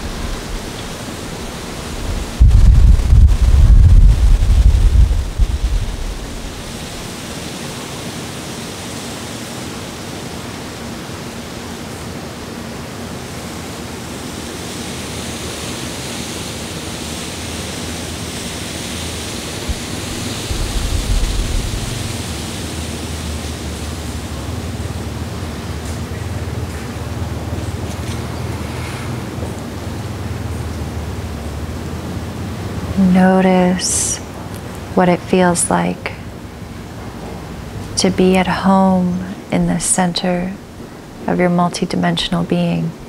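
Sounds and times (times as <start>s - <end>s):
wind buffeting microphone: 0.0s - 7.2s, 19.6s - 25.6s
hiss of open air and wind: 0.0s - 43.0s.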